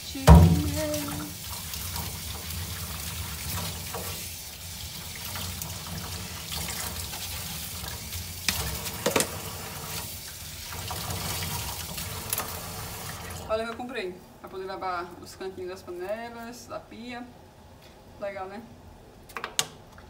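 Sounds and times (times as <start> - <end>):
metal strainer being scrubbed: 0.1 - 1.4
sharp knocks: 0.2 - 1.0
tap running into sink: 0.2 - 1.3, 8.5 - 9.4.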